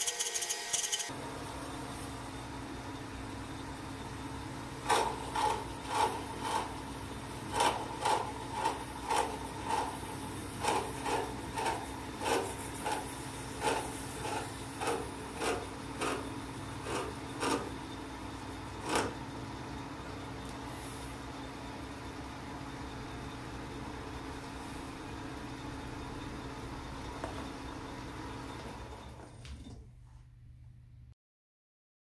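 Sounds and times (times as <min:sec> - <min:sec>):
lathe tool scraping metal: 0:00.0 - 0:01.1, 0:04.8 - 0:18.0, 0:18.7 - 0:19.3
lathe humming: 0:04.4 - 0:21.0.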